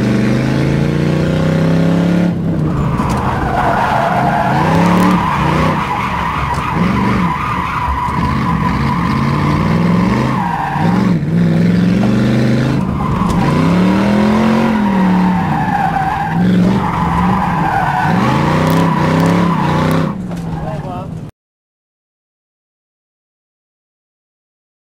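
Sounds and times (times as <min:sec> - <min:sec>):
car engine revving: 0:00.0 - 0:21.2
tyres squealing: 0:02.4 - 0:21.2.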